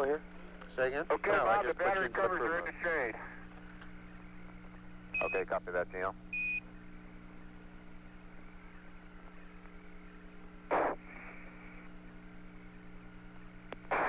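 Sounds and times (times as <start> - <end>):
radio hum and faint hiss: 0.0 - 14.0
radio static bursts: 10.6 - 13.0, 13.8 - 14.0.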